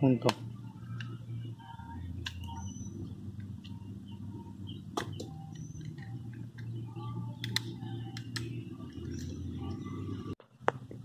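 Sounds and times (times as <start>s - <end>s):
steady low hum: 0.0s - 11.0s
faint bird chirps: 2.4s - 6.2s.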